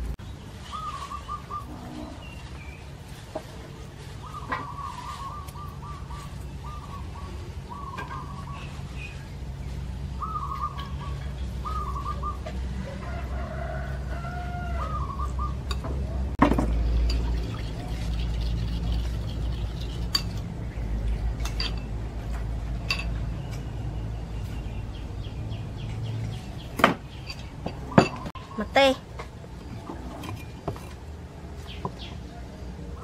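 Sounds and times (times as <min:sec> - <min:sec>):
birds calling: 0:00.0 - 0:33.0
metal spoon clinking ceramic bowl: 0:20.0 - 0:20.4, 0:21.4 - 0:21.9.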